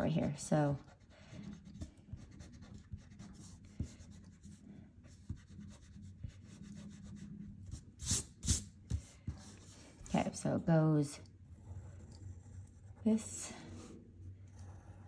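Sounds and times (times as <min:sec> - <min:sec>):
eraser rubbing on paper: 0:00.7 - 0:08.7.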